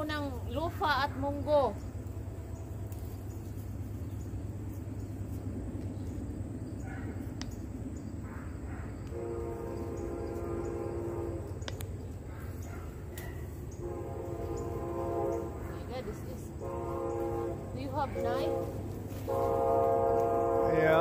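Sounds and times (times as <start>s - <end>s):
continuous low rumble: 0.0s - 21.0s
train horn chord: 9.0s - 11.8s, 13.2s - 21.0s.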